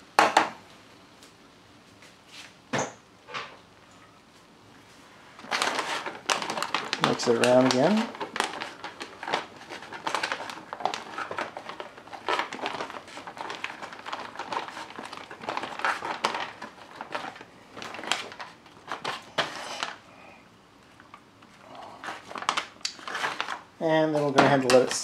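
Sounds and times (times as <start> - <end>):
foil pouch crinkling: 5.4 - 20.0, 21.4 - 25.0.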